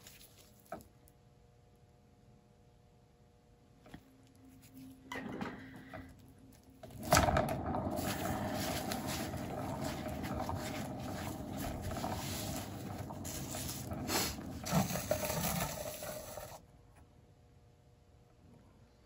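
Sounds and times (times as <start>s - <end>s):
turntable rumbling whir: 6.8s - 16.6s.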